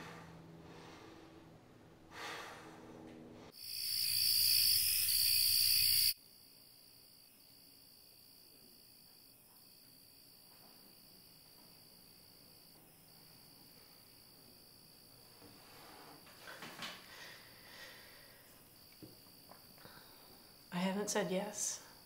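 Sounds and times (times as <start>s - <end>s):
loud cricket chorus: 3.5s - 15.1s
faint cricket chirring: 3.5s - 22.0s.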